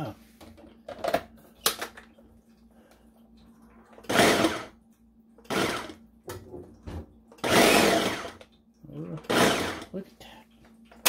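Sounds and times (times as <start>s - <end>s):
blender chopping meat: 4.1s - 4.8s, 5.4s - 6.0s, 7.4s - 8.4s, 9.1s - 10.0s.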